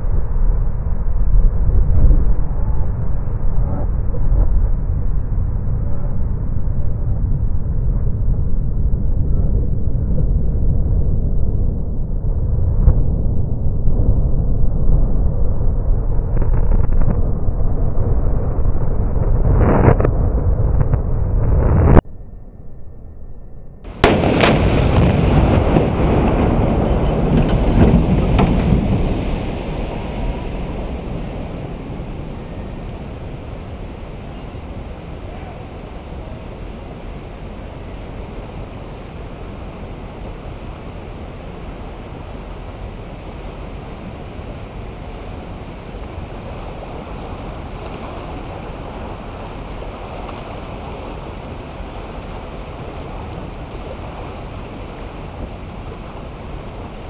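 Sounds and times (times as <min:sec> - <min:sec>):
loud rumbling: 0:00.0 - 0:47.8
wind noise: 0:00.0 - 0:57.0
demolition explosion blast: 0:23.8 - 0:35.3.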